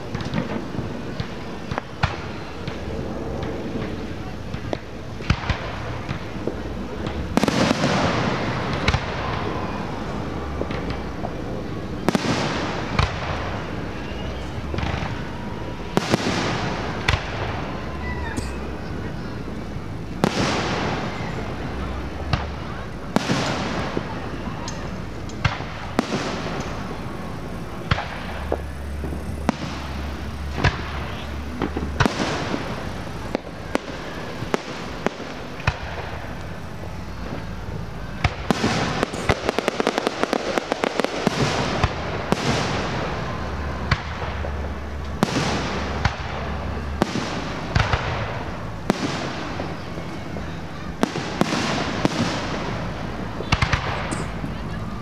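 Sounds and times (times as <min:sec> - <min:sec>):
fireworks bangs: 0:00.0 - 0:55.0
rapid popping fireworks: 0:00.0 - 0:55.0.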